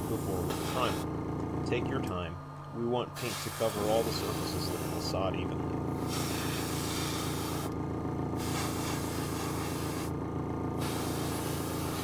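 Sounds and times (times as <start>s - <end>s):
airbrush spraying hiss: 0.0s - 1.1s, 3.2s - 5.2s, 6.0s - 7.7s, 8.4s - 10.1s, 10.8s - 12.0s.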